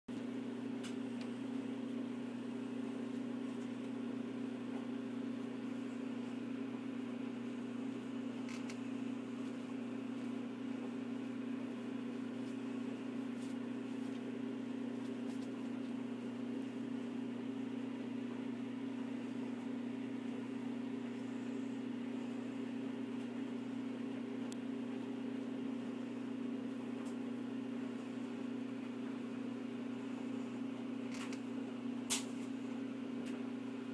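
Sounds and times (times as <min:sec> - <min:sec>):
machine hum: 0:00.1 - 0:33.9.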